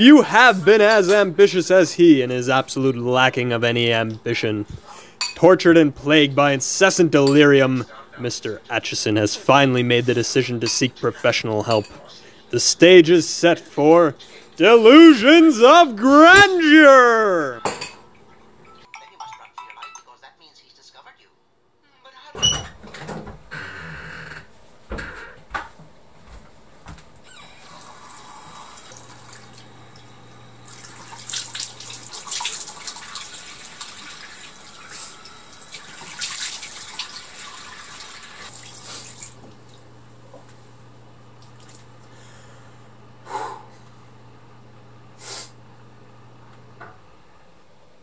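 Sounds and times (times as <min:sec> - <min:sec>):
sink tap running: 0:27.5 - 0:40.0.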